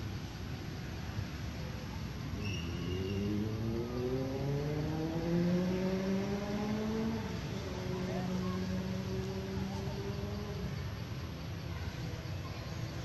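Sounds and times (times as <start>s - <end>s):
engine rising in pitch: 2.4s - 10.7s.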